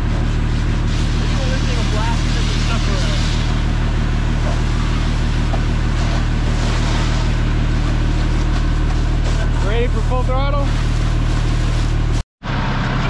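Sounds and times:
truck engine running: 0.0s - 13.0s
hose jet hissing: 0.2s - 7.4s.

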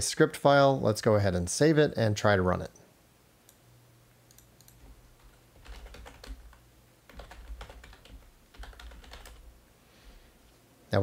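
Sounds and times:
typing on computer keyboard: 4.3s - 9.5s.

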